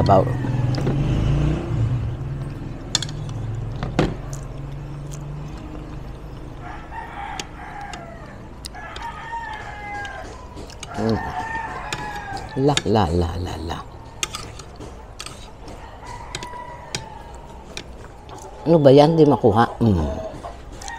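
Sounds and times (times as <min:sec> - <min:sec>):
rooster crowing: 0:00.0 - 0:01.2, 0:06.5 - 0:12.9, 0:15.3 - 0:18.6, 0:20.0 - 0:20.9.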